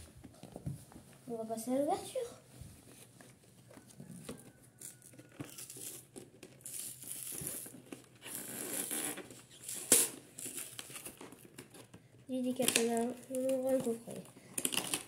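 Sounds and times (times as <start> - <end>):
cardboard seal tearing: 4.3 - 12.0, 14.4 - 15.0.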